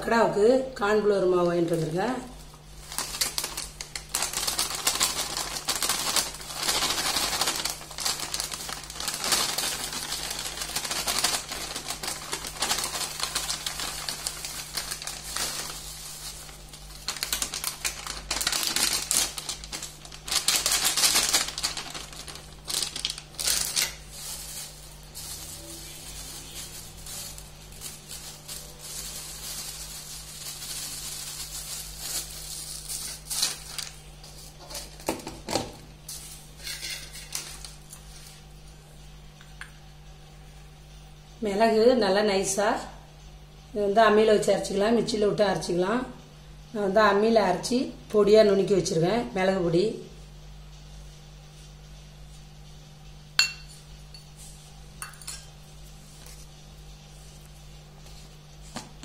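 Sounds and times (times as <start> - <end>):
plastic packet crinkling: 2.8 - 35.1.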